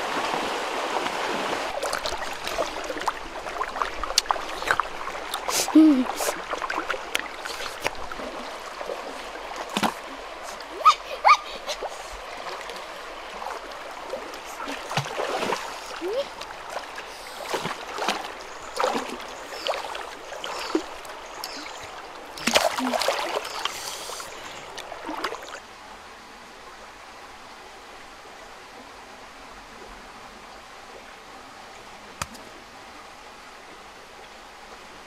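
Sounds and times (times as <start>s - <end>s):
water splashing around wading person: 0.0s - 25.6s
flowing water rushing: 0.0s - 35.0s.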